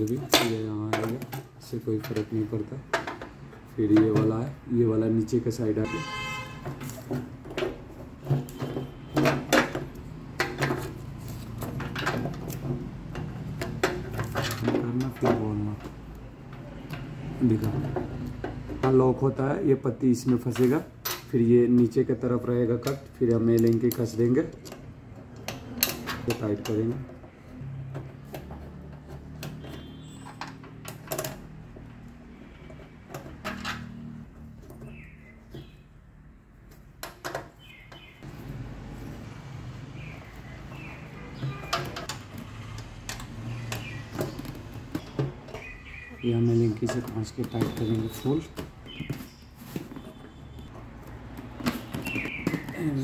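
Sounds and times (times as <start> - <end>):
plastic connectors clicking: 22.7 - 27.2.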